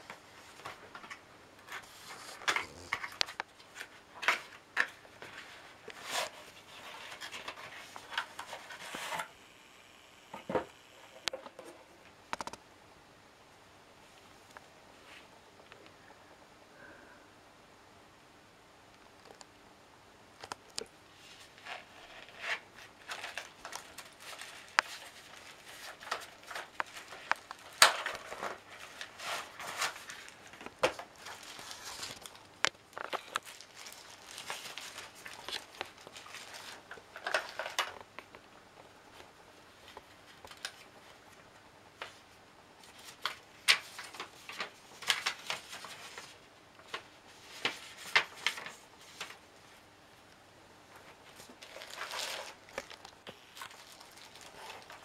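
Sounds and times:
paper leaflet rustling: 21.2s - 37.9s, 42.8s - 49.8s, 50.9s - 55.0s
plastic bag crinkling: 21.6s - 38.1s, 51.0s - 55.0s.

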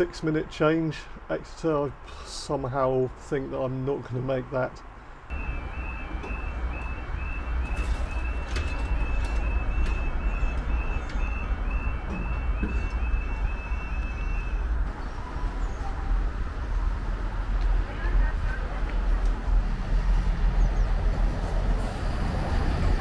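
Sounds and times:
level crossing alarm warble: 5.3s - 16.3s.

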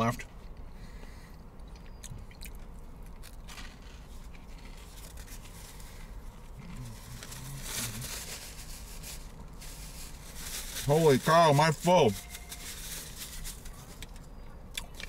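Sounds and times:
paper napkin rustling: 6.8s - 14.0s.

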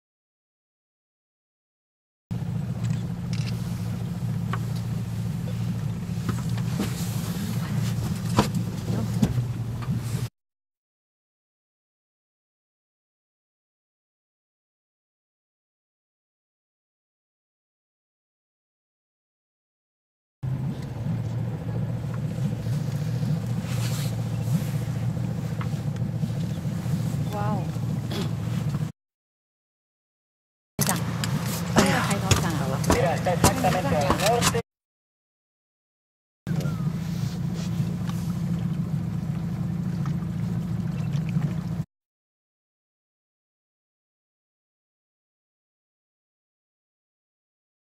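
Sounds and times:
boat engine humming: 2.3s - 10.3s, 20.4s - 28.9s, 30.8s - 34.6s, 36.5s - 41.9s
outboard motor running: 2.3s - 10.3s, 20.4s - 28.9s, 30.8s - 34.6s, 36.5s - 41.9s.

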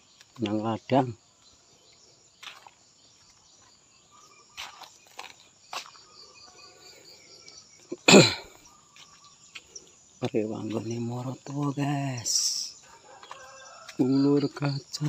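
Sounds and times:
insects trilling: 0.0s - 15.0s
footsteps on dry leaves: 2.4s - 6.2s, 8.6s - 11.8s, 12.8s - 15.0s.

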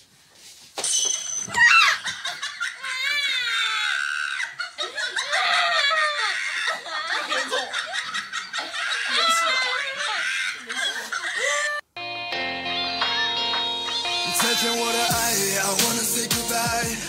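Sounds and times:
woman screaming and wailing: 1.5s - 7.8s, 8.6s - 11.9s.

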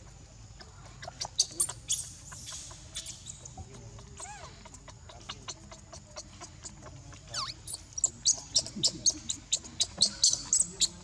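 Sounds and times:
baby monkey crying: 4.2s - 4.9s.

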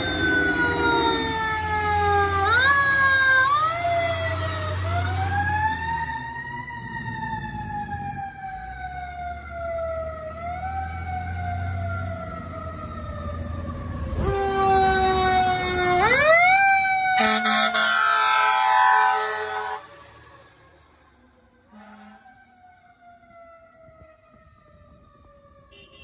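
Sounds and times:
lower siren winding up: 0.0s - 7.6s
siren wailing: 0.0s - 26.0s.

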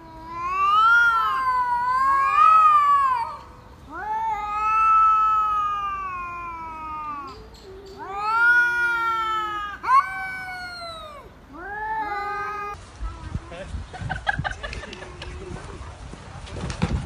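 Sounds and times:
cats yowling: 0.0s - 12.8s.

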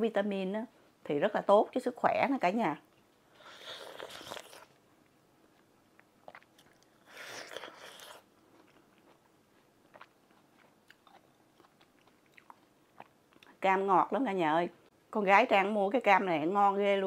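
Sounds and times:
faint chewing: 2.9s - 13.6s
wet bite into fruit: 3.6s - 4.7s, 6.2s - 9.2s.

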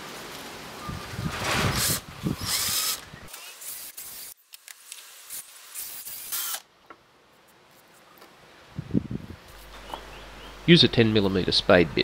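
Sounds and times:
cordless drill boring in bursts: 1.7s - 4.4s, 5.2s - 6.6s.

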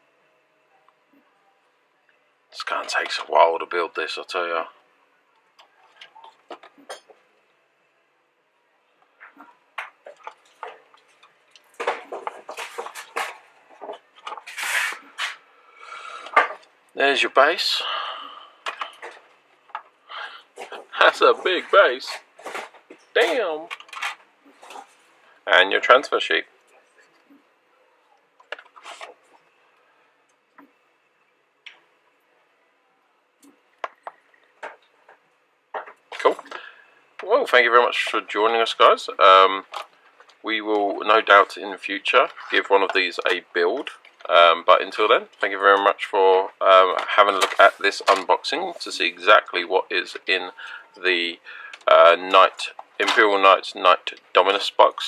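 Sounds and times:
paper rustling and scraping in box: 14.4s - 15.4s
plastic frames clicking and rattling: 22.4s - 24.9s.

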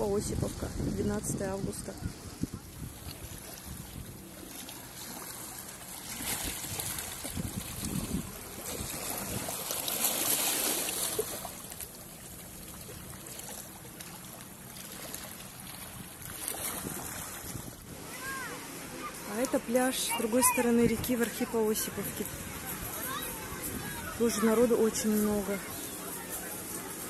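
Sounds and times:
wind on microphone: 0.0s - 4.2s, 6.3s - 9.6s, 16.6s - 18.0s
waves lapping against rocks: 0.0s - 27.0s.

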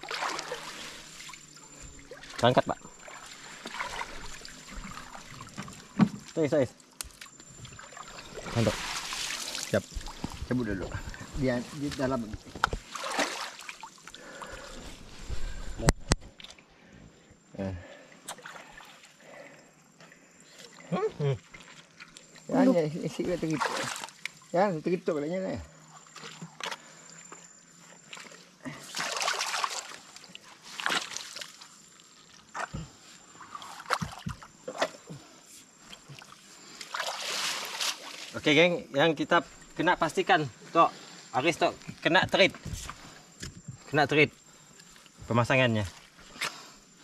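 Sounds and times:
netting rustling in water: 0.0s - 6.0s, 7.4s - 15.8s, 28.0s - 35.1s, 35.9s - 38.4s.

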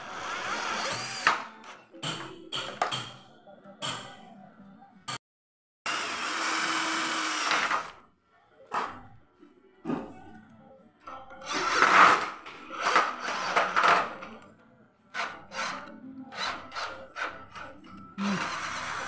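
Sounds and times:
cordless drill driving screws: 0.1s - 1.4s, 5.9s - 7.9s, 11.5s - 14.0s, 18.3s - 19.0s.

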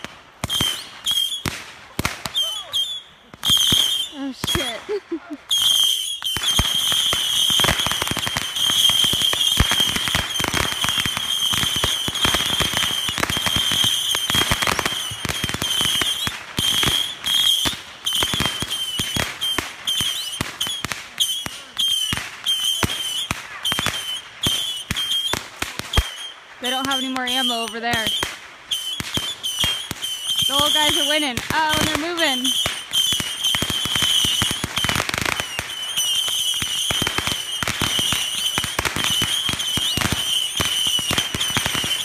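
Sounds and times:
fireworks crackling bangs: 0.0s - 42.0s
high whistle: 0.6s - 1.4s, 2.3s - 4.2s, 5.5s - 7.6s.

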